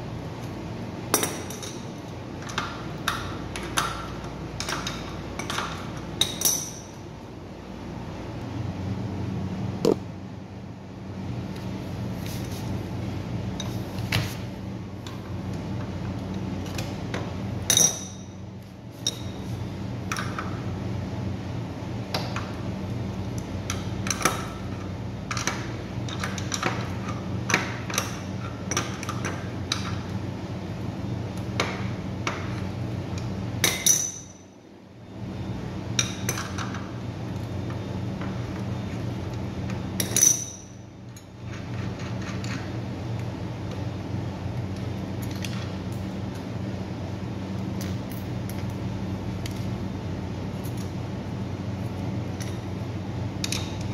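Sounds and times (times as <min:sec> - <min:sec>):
steady low hum: 0:00.0 - 0:53.9
wrench clinking on metal: 0:04.6 - 0:07.0, 0:33.6 - 0:34.4, 0:40.0 - 0:41.3.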